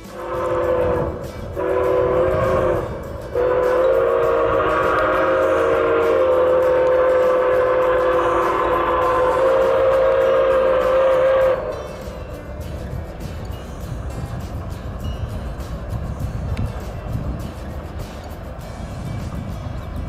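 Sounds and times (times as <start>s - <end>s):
steam whistle blasts: 0.0s - 12.1s
low train rumble: 0.0s - 20.0s.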